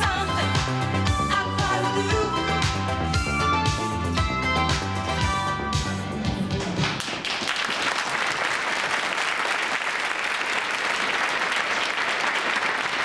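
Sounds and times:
audience applauding: 6.5s - 13.0s.

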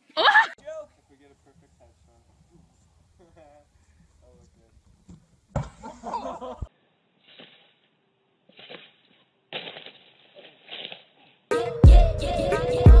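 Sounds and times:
music: 11.5s - 13.0s.

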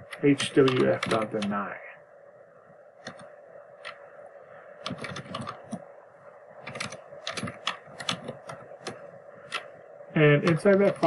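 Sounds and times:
computer keyboard typing: 0.1s - 1.6s, 3.0s - 4.0s, 4.8s - 5.8s, 6.6s - 9.7s, 10.4s - 11.0s.

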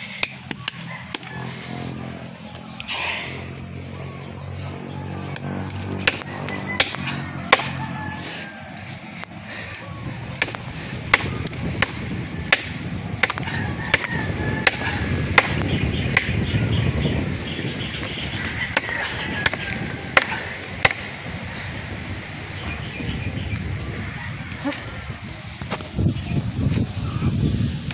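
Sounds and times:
blade chopping into tree trunk: 5.8s - 7.8s, 10.4s - 16.4s, 18.7s - 21.1s.

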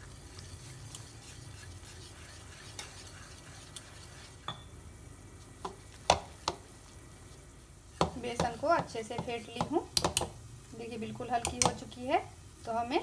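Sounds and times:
whisk stirring batter: 0.0s - 4.6s, 5.4s - 10.3s
whisk clicking against bowl: 0.9s - 4.6s, 8.0s - 10.3s, 11.4s - 11.9s.

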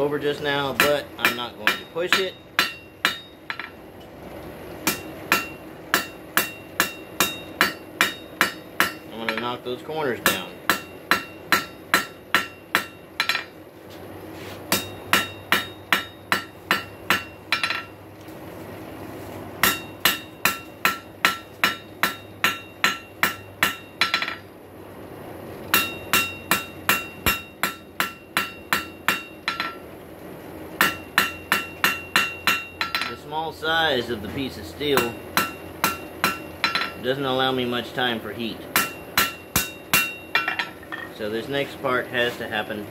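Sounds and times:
hammer striking metal on anvil: 0.7s - 3.8s, 4.8s - 9.6s, 10.2s - 13.6s, 14.7s - 17.9s, 19.6s - 24.5s, 25.7s - 29.8s, 30.8s - 33.2s, 35.0s - 37.1s, 38.7s - 41.2s.

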